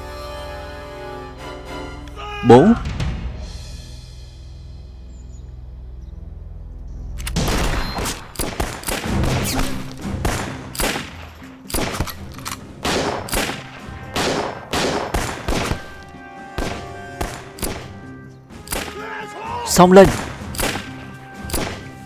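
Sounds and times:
dramatic background music: 0.0s - 22.0s
rifle and pistol shots: 7.2s - 19.0s, 20.0s - 22.0s.

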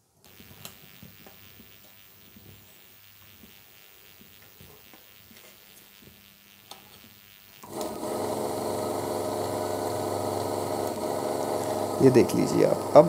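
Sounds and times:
washing machine motor humming: 7.2s - 13.0s.

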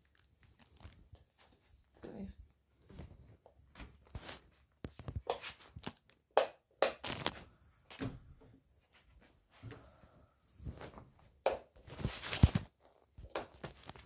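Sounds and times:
rustling: 0.0s - 2.0s, 8.8s - 14.0s.

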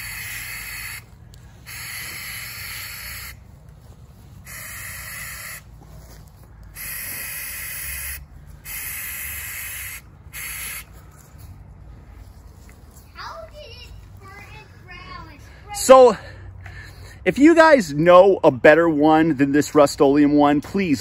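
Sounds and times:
aerosol can spraying: 1.7s - 3.4s, 4.5s - 5.6s, 6.8s - 10.9s.

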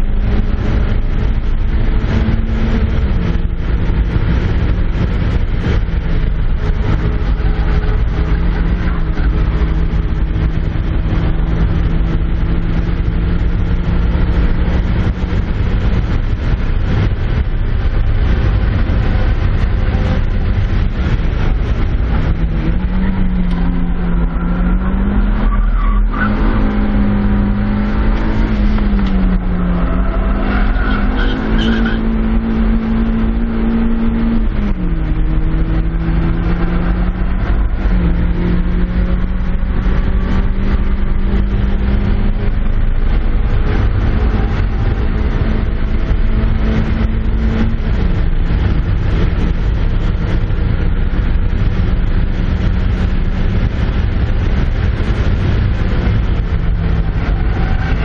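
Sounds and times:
car engine revving: 0.0s - 58.0s
wind and road noise: 0.0s - 58.0s
tires squealing: 18.2s - 49.7s, 52.6s - 58.0s.

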